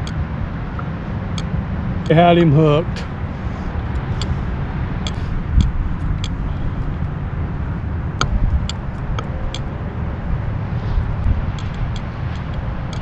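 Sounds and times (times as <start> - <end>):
wind buffeting microphone: 0.0 - 13.0
sharp clicks and knocks: 11.5 - 13.0.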